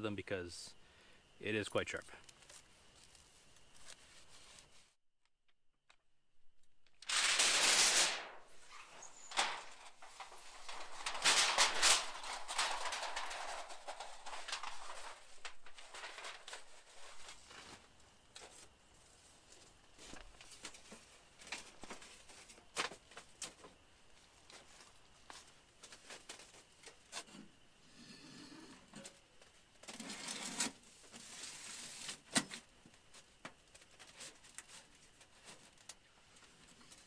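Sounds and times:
rustling: 0:02.1 - 0:05.0, 0:07.0 - 0:27.3.

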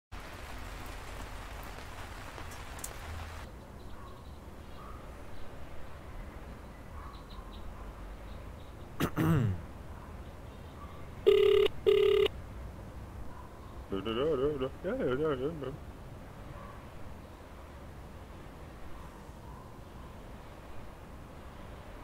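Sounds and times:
rain falling: 0:00.1 - 0:03.5
phone ringing: 0:11.3 - 0:12.3.

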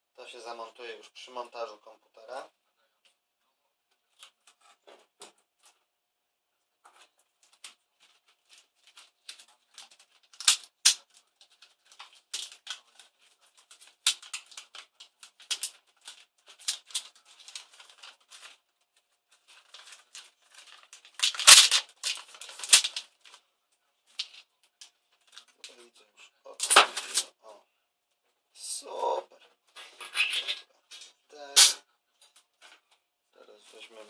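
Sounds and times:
plastic keyboard clicking and cracking: 0:06.9 - 0:18.6, 0:19.5 - 0:23.4, 0:26.6 - 0:27.3
loud snaps: 0:31.5 - 0:31.8.

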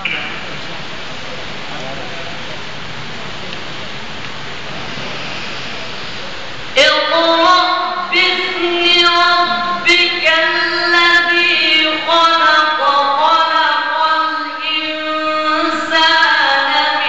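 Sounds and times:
man chanting melodically: 0:07.0 - 0:11.9.

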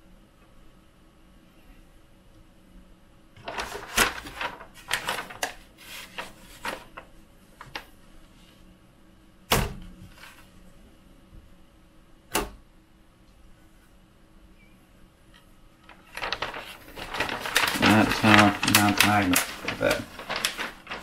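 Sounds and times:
hands rustling and clicking: 0:15.9 - 0:21.0.

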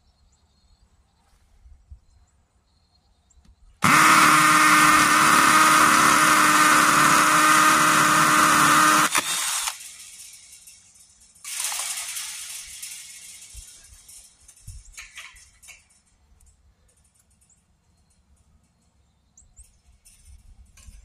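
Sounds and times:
hammer drill drilling into concrete: 0:03.8 - 0:10.0, 0:11.5 - 0:13.4.

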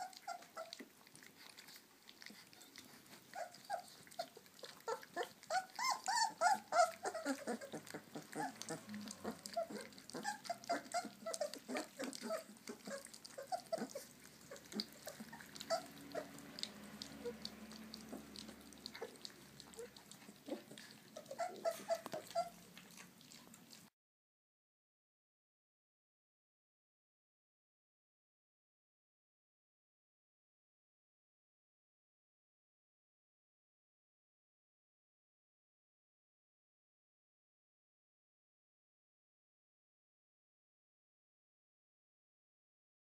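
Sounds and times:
puppies lapping and chewing: 0:00.0 - 0:23.9
puppies whimpering and squeaking: 0:00.0 - 0:23.9.

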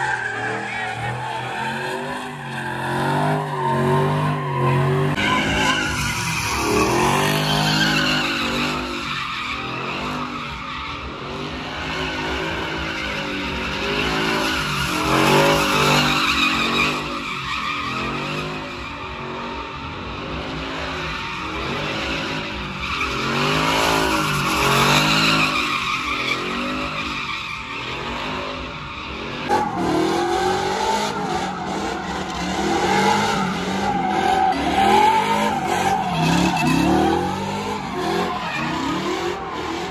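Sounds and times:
tyres squealing and skidding: 0:00.0 - 0:39.9
truck engine revving: 0:27.8 - 0:39.9.

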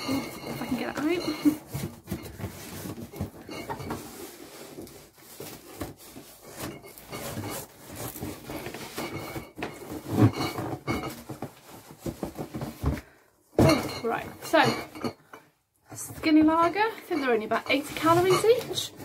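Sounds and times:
cardboard rustling and scraping: 0:00.0 - 0:13.2, 0:16.0 - 0:19.0.

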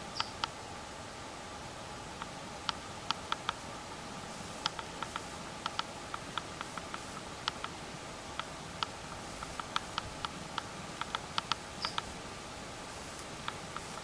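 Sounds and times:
steady hiss: 0:00.0 - 0:14.0
sharp ticks: 0:02.2 - 0:03.6, 0:04.6 - 0:12.1.

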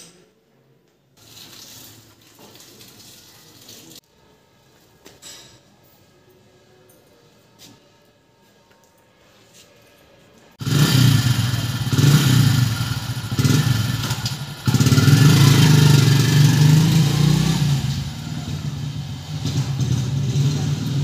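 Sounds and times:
motorcycle engine running: 0:10.6 - 0:21.0.

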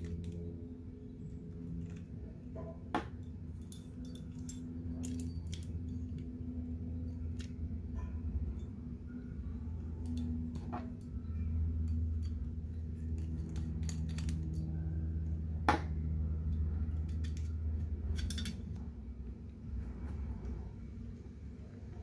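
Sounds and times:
steady low hum: 0:00.0 - 0:22.0
clicks and taps of pistol parts: 0:13.2 - 0:14.6.

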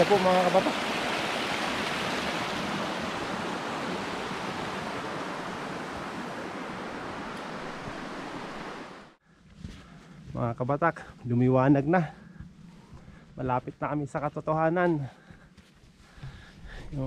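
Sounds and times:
waterfall rushing: 0:00.0 - 0:09.2.

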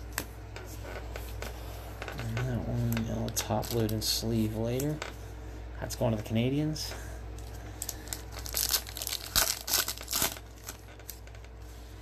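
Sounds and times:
plastic packaging crinkling: 0:02.2 - 0:05.0, 0:07.4 - 0:11.4.

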